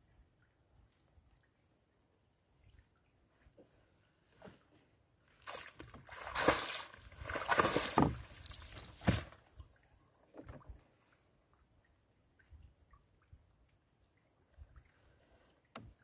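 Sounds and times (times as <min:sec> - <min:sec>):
water splashing off fishing net: 0:05.5 - 0:09.4.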